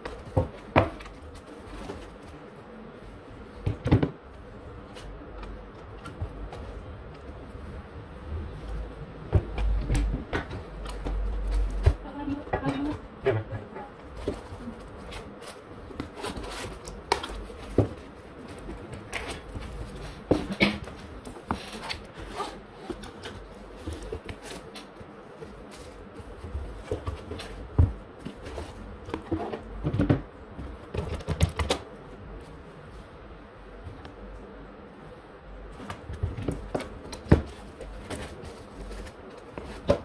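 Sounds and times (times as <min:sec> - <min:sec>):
foam packaging rustling: 0:14.1 - 0:29.8, 0:36.2 - 0:40.0.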